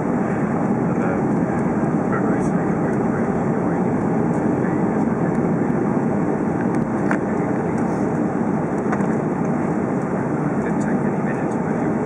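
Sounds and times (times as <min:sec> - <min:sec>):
distant jet engines roaring: 0:00.0 - 0:12.0.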